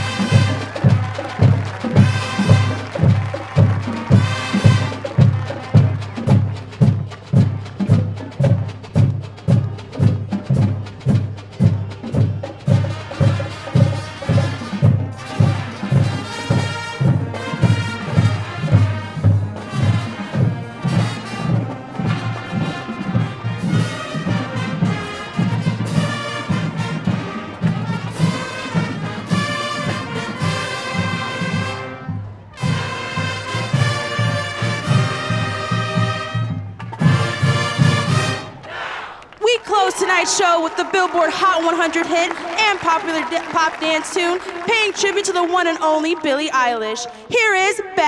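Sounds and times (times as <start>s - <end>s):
brass chords: 0.0s - 8.8s, 12.5s - 38.7s
steady low drum beat: 0.0s - 26.2s
marching band playing: 0.0s - 48.0s.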